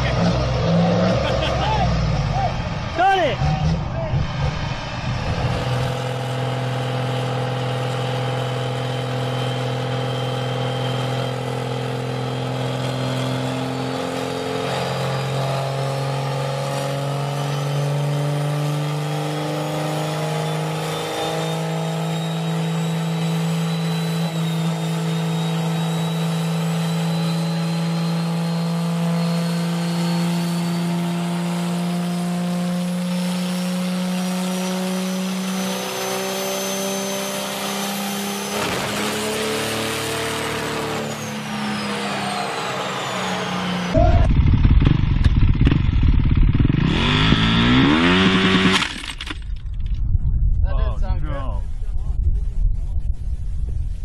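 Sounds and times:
diesel truck engine under load: 38.3 - 50.0.

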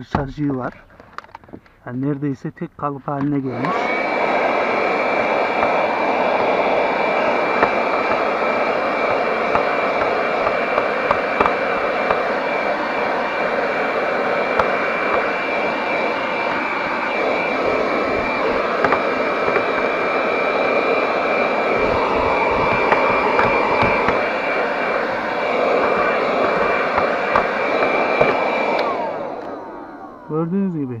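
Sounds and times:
handheld vacuum cleaner whining: 3.2 - 30.8.

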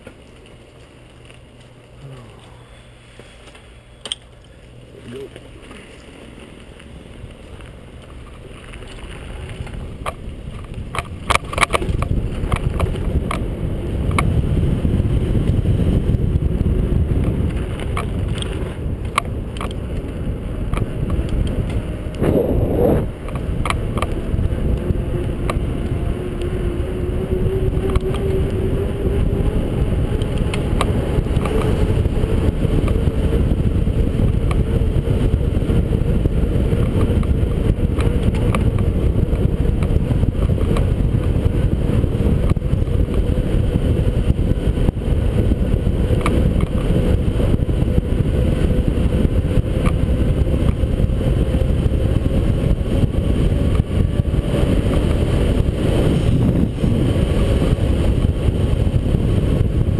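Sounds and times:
bicycle rattles over bumps: 0.0 - 59.9
bicycle tyre rumble: 0.0 - 59.9
wind buffeting microphone: 5.1 - 59.9
whoosh: 22.2 - 23.2.

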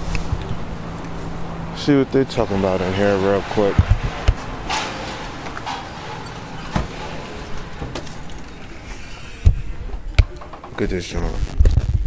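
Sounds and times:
outdoor background noise: 0.0 - 12.0
glass door opening: 3.6 - 10.9
scattered clicks and knocks: 3.6 - 11.0.

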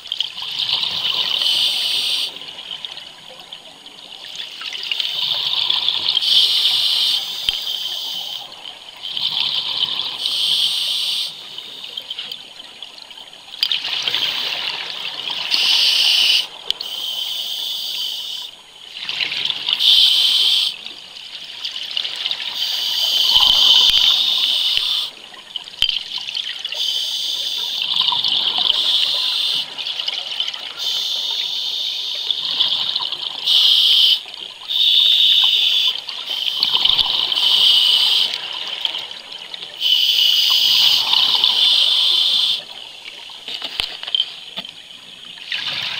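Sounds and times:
diver breathing through regulator: 10.1 - 11.4, 22.6 - 25.1, 33.5 - 38.4, 39.8 - 42.7.

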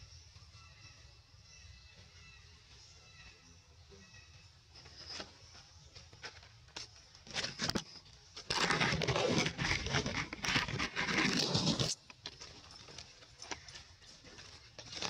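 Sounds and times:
dry rustling and crackling: 6.0 - 15.0.

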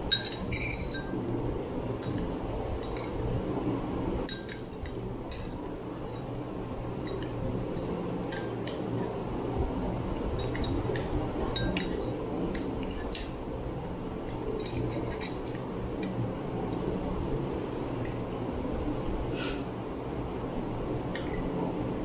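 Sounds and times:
electric fan humming: 0.0 - 22.0
metal spoons clinking on glass bowls: 0.1 - 1.2, 4.3 - 6.4, 10.3 - 13.4, 14.6 - 15.7.

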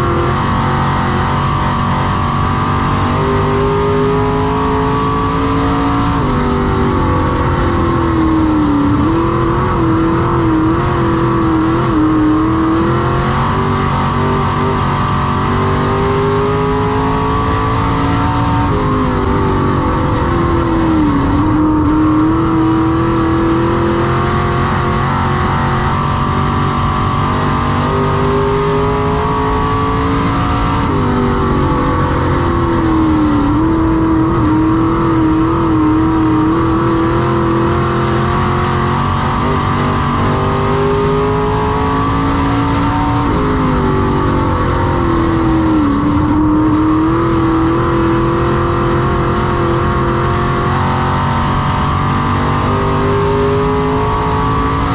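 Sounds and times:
race car engine running hard: 0.0 - 54.9.

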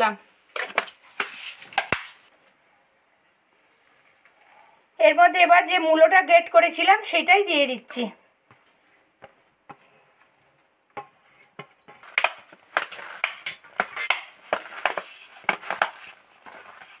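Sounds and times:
hand mixing food in a bowl: 8.4 - 17.0.

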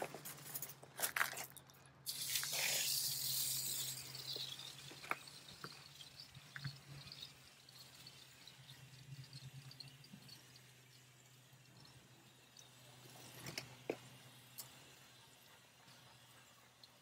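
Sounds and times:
water hissing from hose spray: 2.1 - 8.7.

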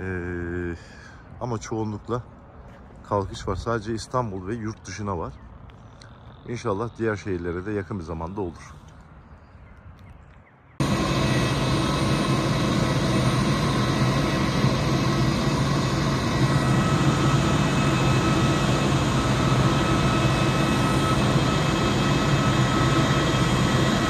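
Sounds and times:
auxiliary power unit hum and whine: 10.8 - 24.0.

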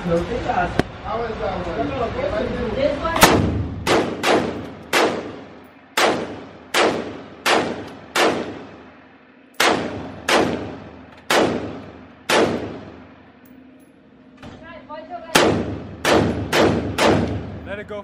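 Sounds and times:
pistol shots echoing indoors: 3.2 - 8.9, 9.5 - 13.3, 15.3 - 17.7.

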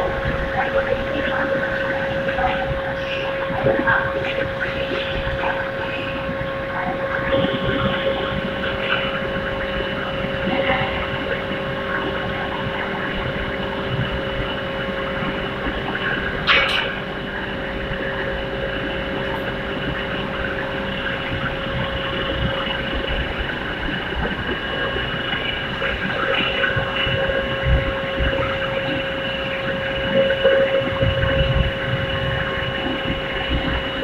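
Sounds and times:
furnace electrical hum: 0.0 - 34.0.

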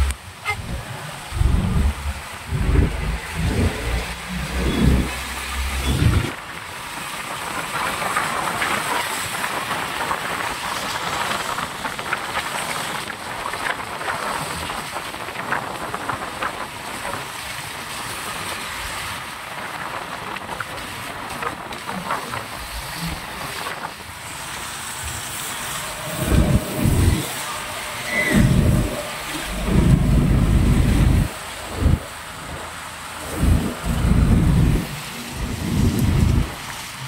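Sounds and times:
tyres hissing through water: 0.0 - 7.4, 22.4 - 37.0.

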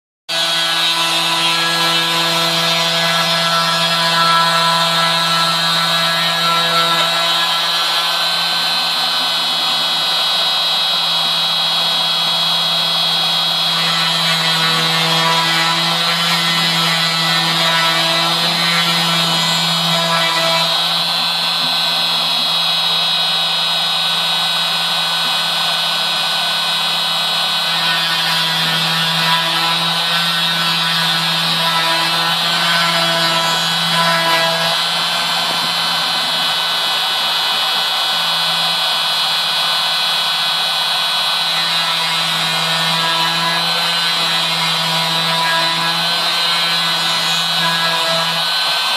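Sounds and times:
router spindle whining: 0.3 - 48.9.

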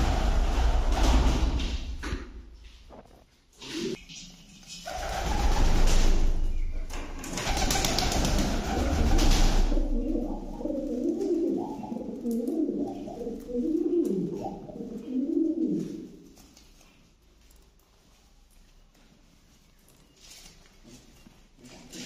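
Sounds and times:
loud rushing rumble: 0.0 - 1.9
pigeons cooing: 4.7 - 16.2.

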